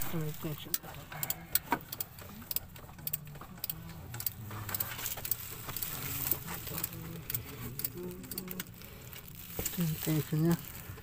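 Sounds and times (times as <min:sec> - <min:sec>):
tools clicking and tapping: 0:00.1 - 0:08.7.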